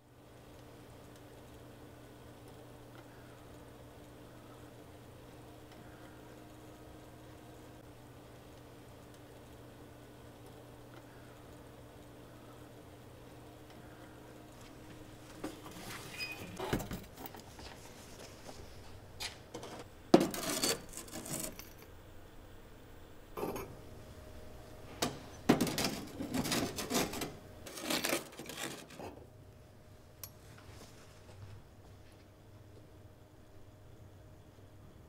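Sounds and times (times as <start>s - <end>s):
metal scoop scraping on board: 19.6s - 21.7s, 25.6s - 29.1s.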